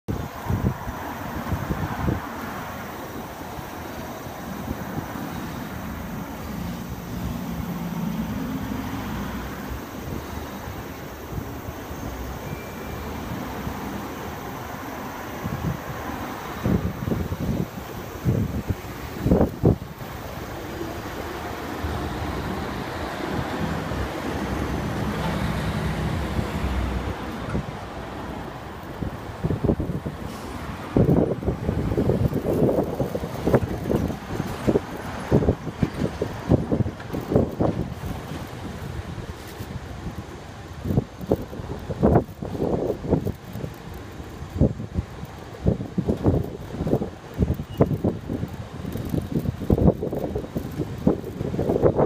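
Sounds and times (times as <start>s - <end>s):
vehicle passing: 5.8s - 9.8s.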